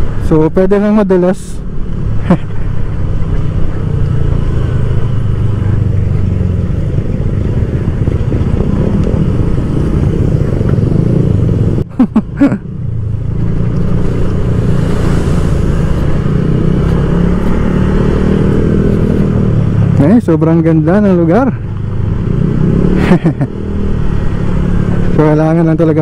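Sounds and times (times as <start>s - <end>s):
scooter engine and road rumble: 0.0s - 26.0s
wind on microphone: 2.8s - 11.9s, 13.1s - 20.0s.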